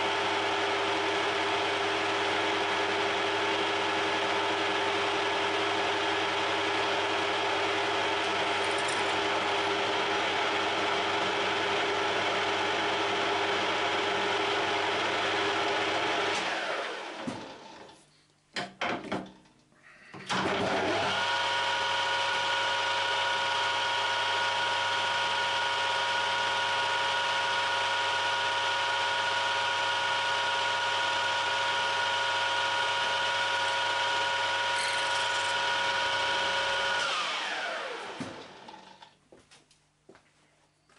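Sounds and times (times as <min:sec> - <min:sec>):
metal lathe motor and gear whine: 0:32.8 - 0:38.1.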